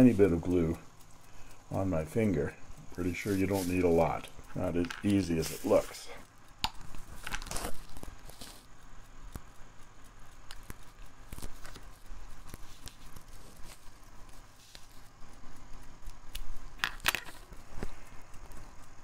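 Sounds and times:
sharp clicks: 0.0 - 19.0
small clicks and rubbing: 0.0 - 19.0.

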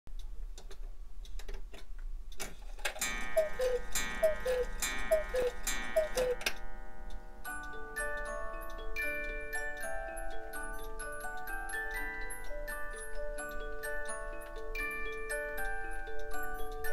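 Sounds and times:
clock ticking: 3.0 - 16.9
music box tune: 3.0 - 16.9
two-note cuckoo calls: 3.1 - 6.6.

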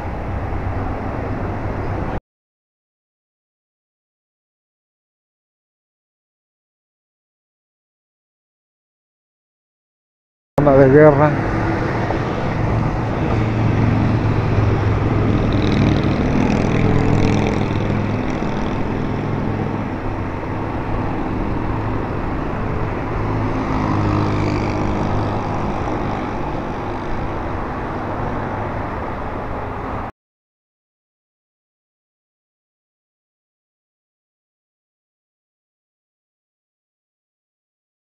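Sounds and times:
rush of noise: 10.6 - 30.1
motorcycle engine running: 14.2 - 20.2.

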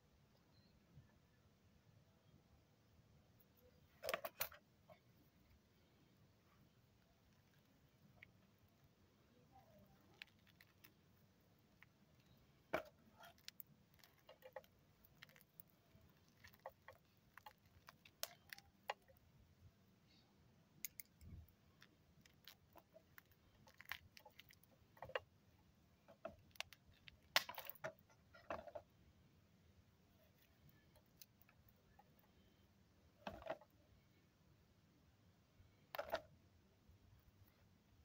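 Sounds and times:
soil crumbling and roots pulling: 9.7 - 19.2, 20.8 - 25.3
roots snapping: 12.7 - 19.1.

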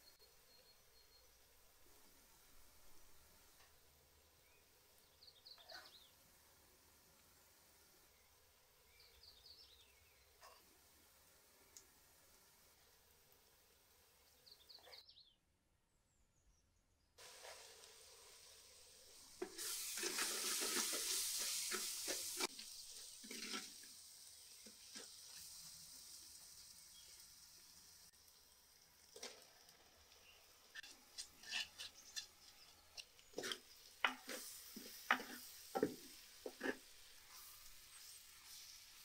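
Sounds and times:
spices sizzling in a clay pot: 0.0 - 15.0, 17.2 - 39.0
metal spoon scraping clay pot: 30.8 - 37.5.

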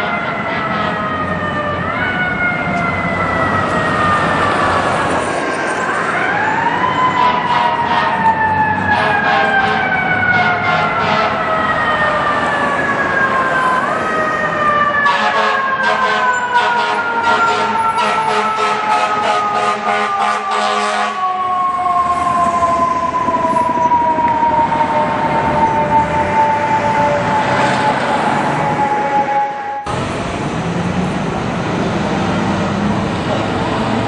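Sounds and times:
mechanical siren wailing: 0.0 - 30.0
street traffic rumble: 0.0 - 34.0.

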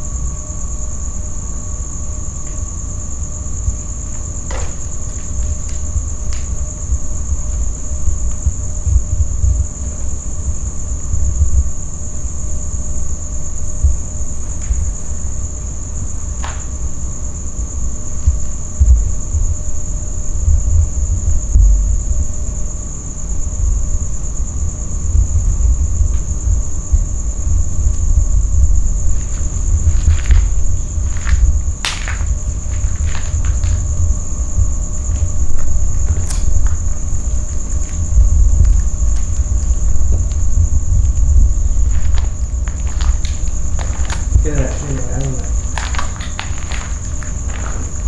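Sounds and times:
night insects chorus: 0.0 - 48.0
low rumble: 25.0 - 45.8.

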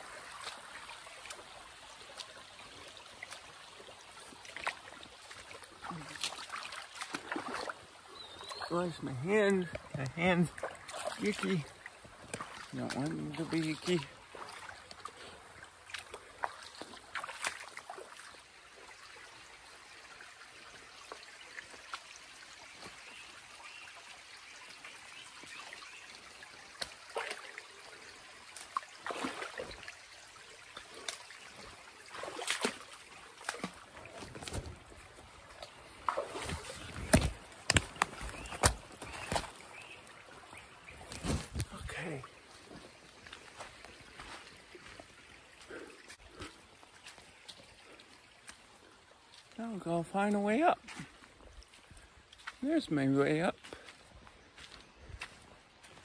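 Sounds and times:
creek trickling: 0.0 - 56.0
rustling through brush: 33.5 - 40.0, 40.9 - 45.0
scraping and knocking on logs: 36.4 - 39.5.

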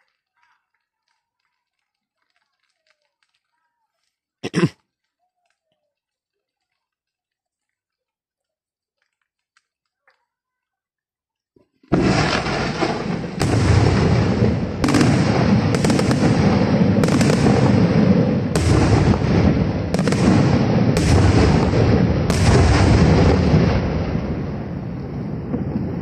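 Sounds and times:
rumbling crackle of fireworks: 0.0 - 7.8, 11.7 - 26.0
fireworks bursting with loud bangs: 11.8 - 26.0.

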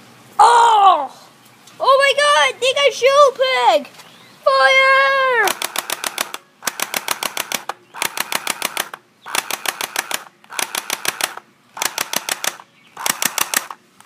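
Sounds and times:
toy airsoft rifle firing bursts: 5.4 - 13.8.

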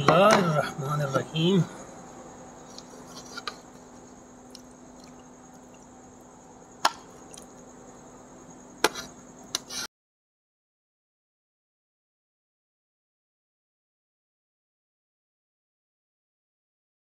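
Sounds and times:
steady low hum: 0.0 - 9.9
faint chewing and food handling: 2.6 - 5.9.

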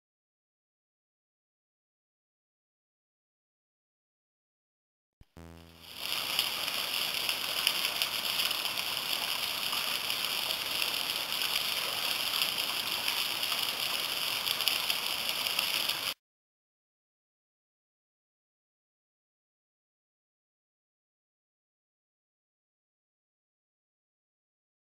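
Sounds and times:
waterfall splashing: 5.8 - 16.2.

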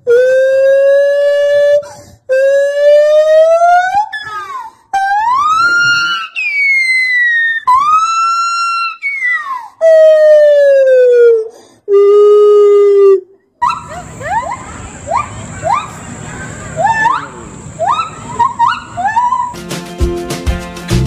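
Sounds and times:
gibbon hooting calls: 13.6 - 19.6
steady hiss: 13.7 - 21.0.

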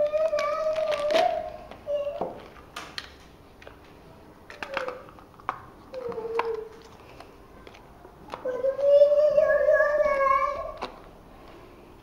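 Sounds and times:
plastic bags tapping and clicking: 0.0 - 8.5, 10.6 - 11.6.

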